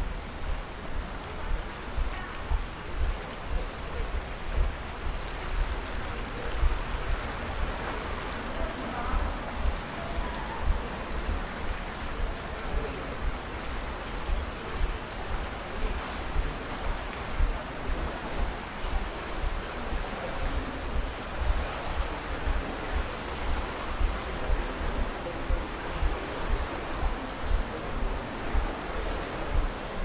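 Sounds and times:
running water rushing: 0.0s - 30.0s
wind rumbling on microphone: 0.0s - 30.0s.

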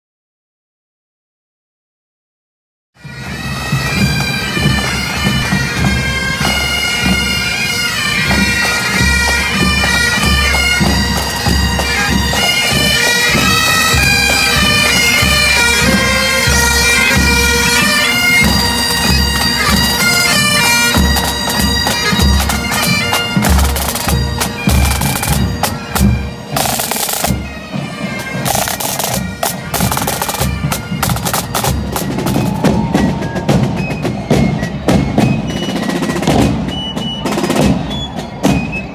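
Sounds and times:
bagpipes playing: 3.0s - 36.4s
side drums: 3.1s - 38.9s.

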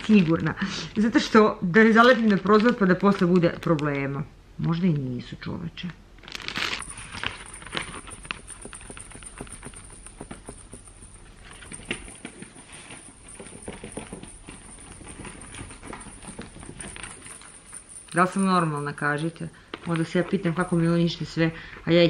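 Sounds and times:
plastic bag rustling: 0.0s - 4.1s, 6.2s - 19.0s.

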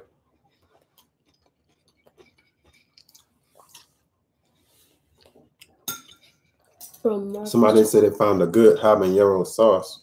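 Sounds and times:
faint chewing: 0.0s - 7.4s.

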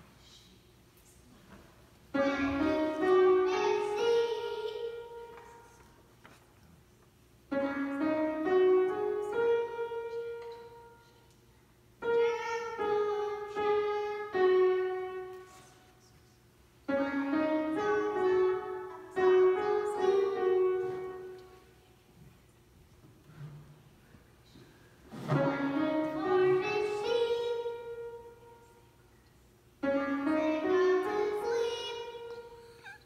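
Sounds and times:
child playing piano melody: 2.2s - 5.6s, 7.5s - 11.0s, 12.0s - 15.6s, 16.9s - 21.6s, 25.4s - 28.6s, 29.8s - 33.0s.

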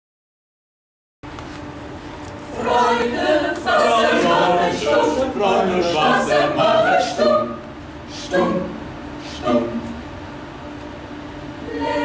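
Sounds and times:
a cappella vocal ensemble singing: 2.4s - 10.2s, 11.6s - 12.0s.

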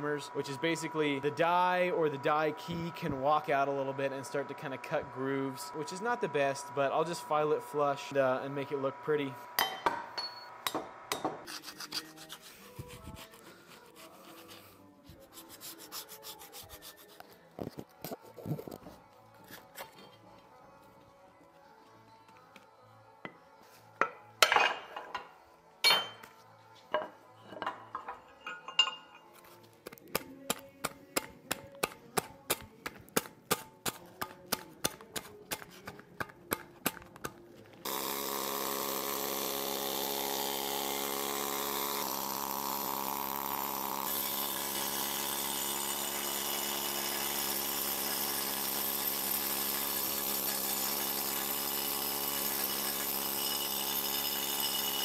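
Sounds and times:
air-powered wire brush: 37.8s - 55.0s.

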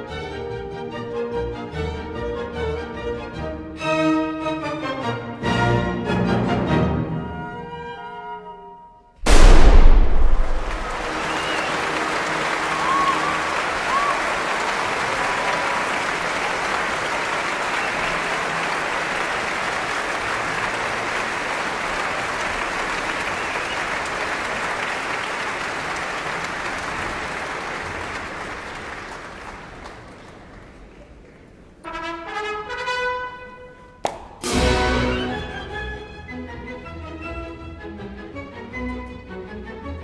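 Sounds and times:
orchestra playing: 0.0s - 8.7s, 31.8s - 40.0s
audience whistle: 10.3s - 16.7s, 17.3s - 18.5s, 22.9s - 25.6s
audience applauding: 10.4s - 31.6s.

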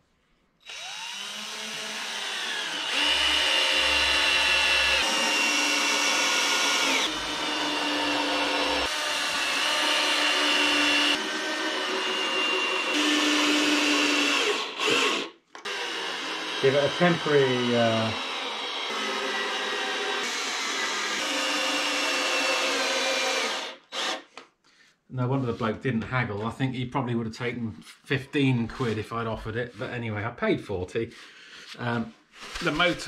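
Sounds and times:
cordless drill drilling into wood: 0.6s - 24.3s.

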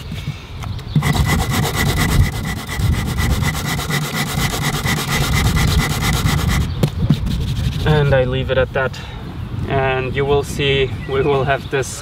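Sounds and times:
electric sander buzzing: 1.0s - 6.7s.

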